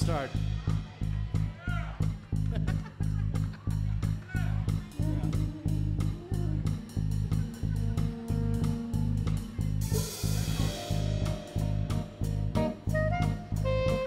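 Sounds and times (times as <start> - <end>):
bass guitar: 0.0 - 14.0
drum kit: 0.0 - 14.0
electric guitar: 9.9 - 14.0.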